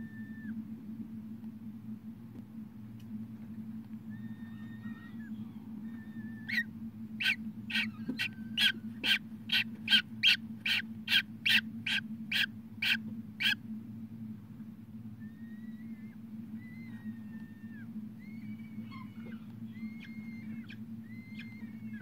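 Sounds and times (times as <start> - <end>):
steady low hum: 0.0 - 22.0
falcon chick peeping: 4.2 - 13.6, 15.5 - 22.0.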